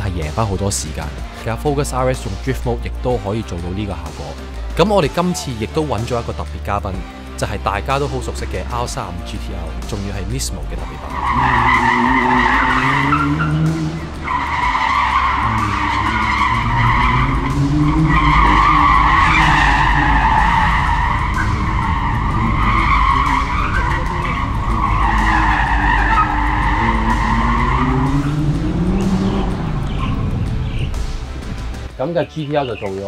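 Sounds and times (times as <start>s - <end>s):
car engine revving: 5.6s - 32.0s
tyres squealing on concrete: 7.4s - 31.0s.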